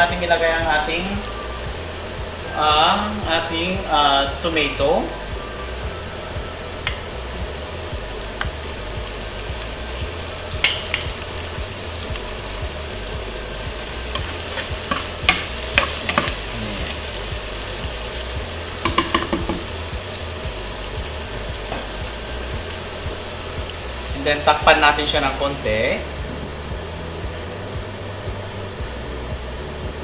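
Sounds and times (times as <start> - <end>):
exhaust fan hum: 0.0 - 30.0
tomatoes sizzling in oil: 0.0 - 30.0
utensil scraping pot: 14.1 - 17.2.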